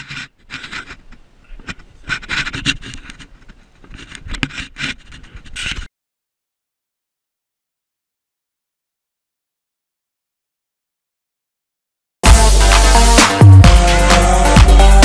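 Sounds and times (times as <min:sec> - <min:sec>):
camera scraping against fur: 0:00.0 - 0:05.9.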